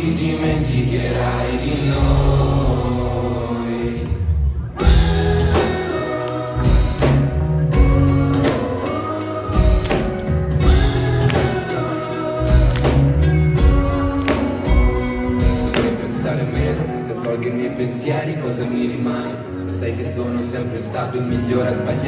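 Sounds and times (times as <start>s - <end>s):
deep bass beats: 1.2s - 8.8s, 9.5s - 11.8s.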